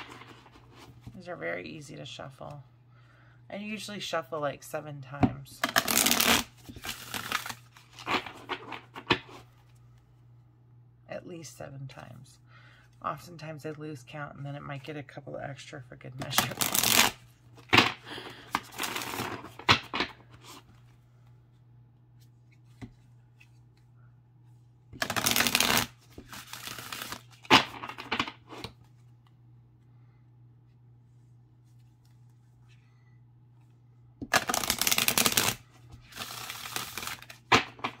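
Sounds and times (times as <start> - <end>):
cards riffle-shuffled: 5.6 - 9.8, 16.2 - 20.9, 25.0 - 29.1, 34.2 - 38.0
cards rustling and clicking: 5.6 - 10.0, 16.2 - 21.3, 25.0 - 29.2, 34.2 - 38.0.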